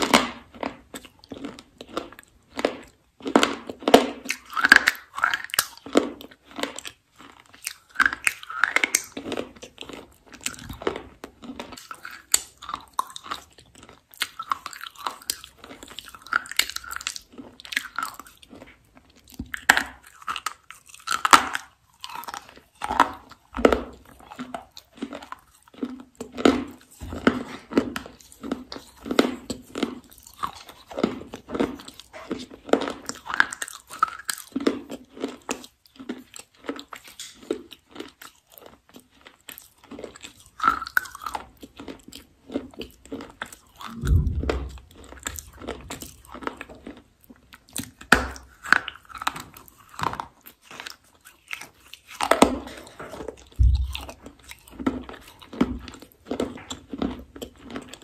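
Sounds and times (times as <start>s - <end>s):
chewing and crunching: 0.0s - 58.0s
low thump: 43.9s - 46.1s, 53.6s - 54.2s.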